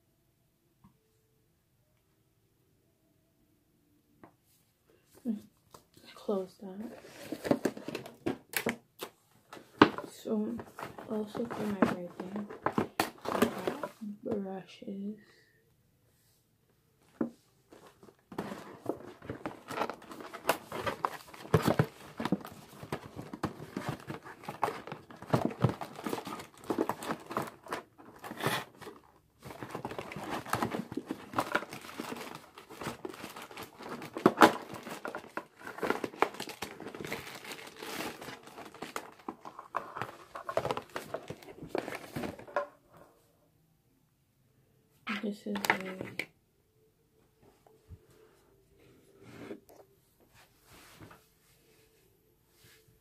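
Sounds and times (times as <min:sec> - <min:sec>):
plastic packaging crinkling: 0:09.6 - 0:13.9, 0:17.7 - 0:42.6.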